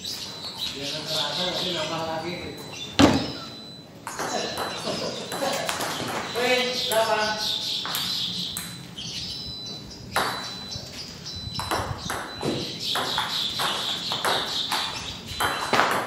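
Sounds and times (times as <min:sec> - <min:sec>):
table tennis ball hits: 0:04.0 - 0:07.1, 0:10.2 - 0:10.5, 0:11.6 - 0:16.0.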